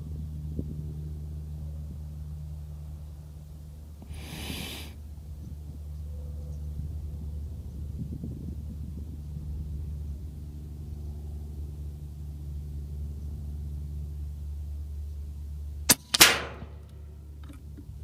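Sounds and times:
air rifle shot crack: 15.9s - 16.9s
air rifle click: 15.9s - 17.6s.

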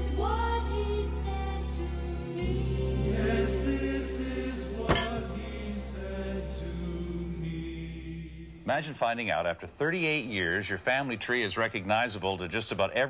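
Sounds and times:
sharp hit: 4.9s - 5.3s.

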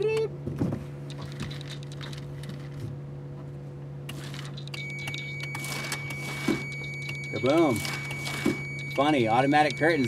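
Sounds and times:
electric motor humming: 4.1s - 10.0s.

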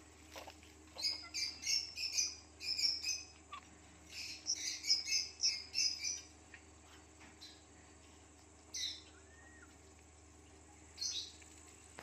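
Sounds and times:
parrot chirping: 1.0s - 3.3s.

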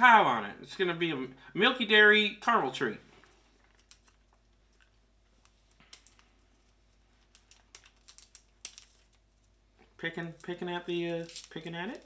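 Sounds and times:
wrapped caramels tipping out: 5.6s - 12.0s.

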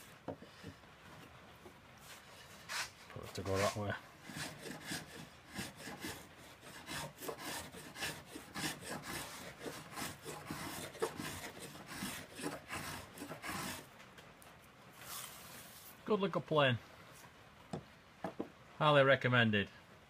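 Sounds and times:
hand plane cutting wood: 2.6s - 13.9s.

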